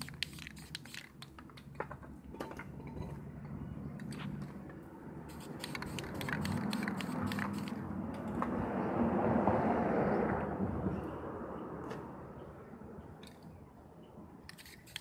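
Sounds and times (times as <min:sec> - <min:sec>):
spray paint hissing: 0:00.0 - 0:01.2, 0:05.3 - 0:07.8, 0:14.5 - 0:15.0
spray can rattling: 0:00.0 - 0:01.4, 0:05.3 - 0:07.8, 0:14.5 - 0:15.0.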